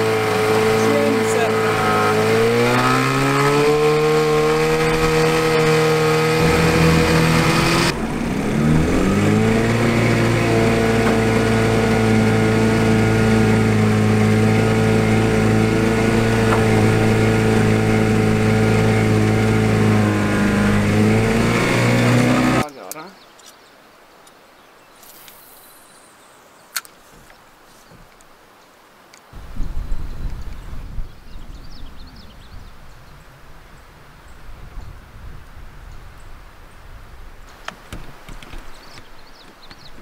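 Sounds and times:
outboard motor running: 0.0 - 22.7.

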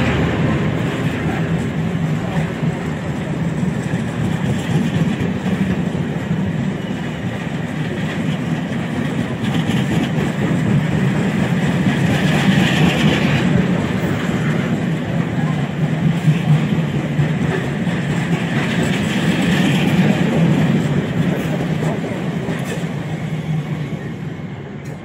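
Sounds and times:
train wheels rumbling on rails: 0.0 - 25.0.

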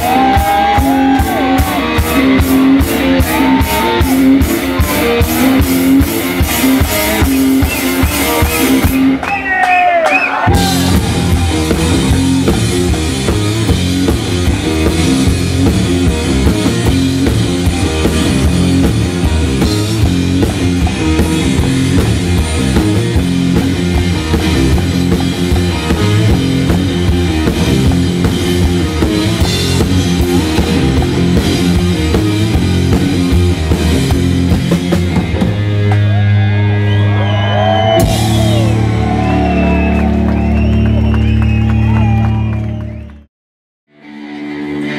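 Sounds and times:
electric guitar: 0.0 - 9.4, 10.4 - 43.1, 43.9 - 44.9
drum kit pounding: 0.0 - 9.8, 10.4 - 42.8.

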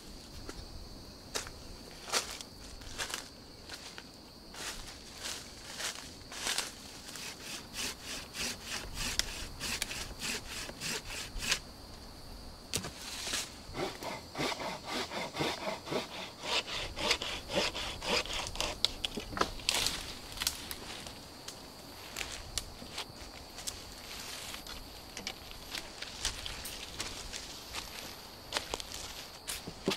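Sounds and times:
hand saw cutting wood: 7.1 - 11.6, 13.7 - 19.2.

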